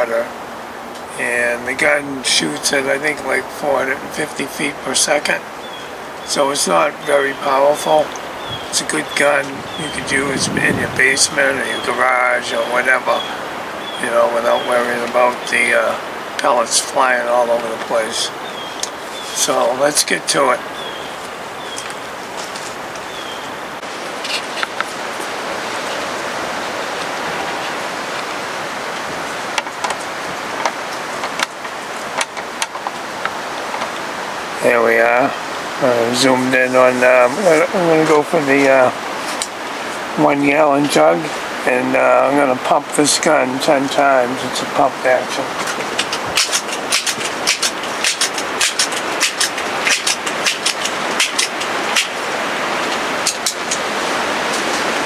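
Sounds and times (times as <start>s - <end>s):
strong wind rushing: 4.8s - 40.3s
small sharp clicks: 45.6s - 52.2s.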